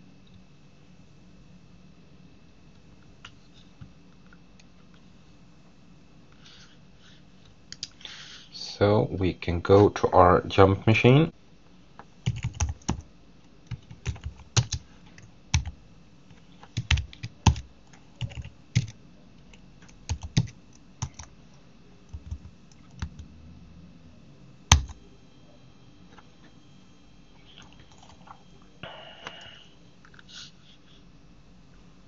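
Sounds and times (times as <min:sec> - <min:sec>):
computer keyboard typing: 0:12.2 - 0:13.1, 0:13.7 - 0:15.8, 0:16.6 - 0:21.3, 0:22.0 - 0:23.3, 0:24.7 - 0:25.0, 0:27.6 - 0:28.4.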